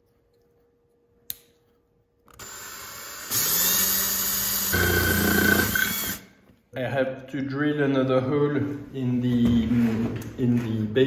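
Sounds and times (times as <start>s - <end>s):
click: 1.3s - 1.5s
cordless drill spinning up: 2.3s - 6.2s
drill bit grinding through plastic: 2.4s - 6.2s.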